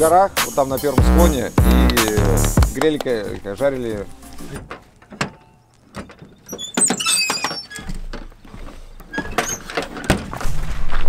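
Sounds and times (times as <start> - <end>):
footsteps on wooden steps: 1.6 - 3.4, 7.8 - 11.0
door hinge squeak: 5.2 - 8.0.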